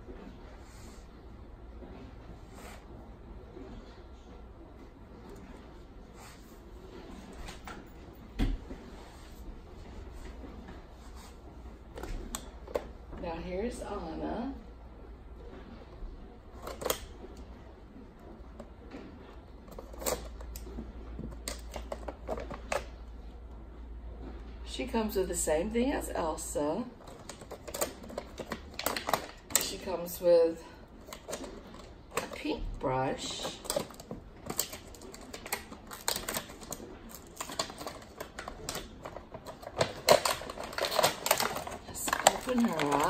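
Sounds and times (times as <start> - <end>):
packaging clicks and rustles: 16.5 - 17.4, 19.6 - 23.1, 26.9 - 29.9, 30.8 - 43.0.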